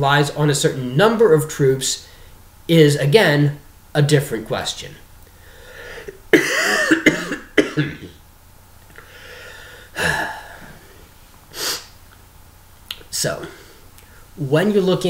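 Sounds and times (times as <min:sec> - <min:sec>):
short breath: 0:05.3 - 0:06.1, 0:09.0 - 0:10.9
man coughing: 0:06.0 - 0:08.2, 0:09.9 - 0:10.8.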